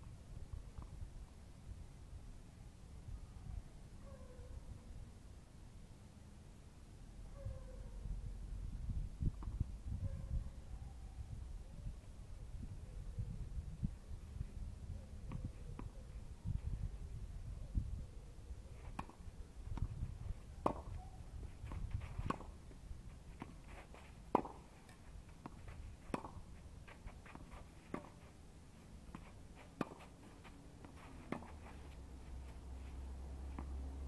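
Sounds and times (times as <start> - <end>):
ball bouncing: 20.6 - 21.0, 24.3 - 28.2
racket striking tennis ball: 20.6 - 28.4, 29.0 - 32.6.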